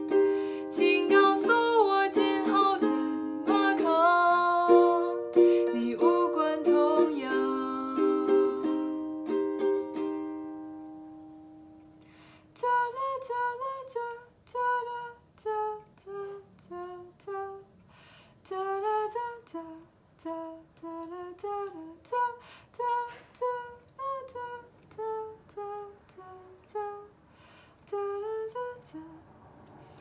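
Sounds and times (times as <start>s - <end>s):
woman singing: 0.0s - 9.0s, 12.6s - 17.7s, 18.4s - 27.2s, 27.8s - 29.2s
ukulele chord: 0.0s - 12.0s.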